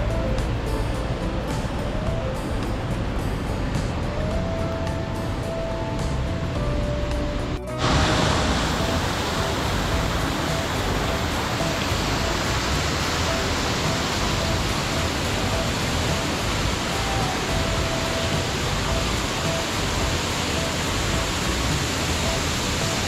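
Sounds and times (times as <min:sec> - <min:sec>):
waterfall roar: 0:07.7 - 0:23.0.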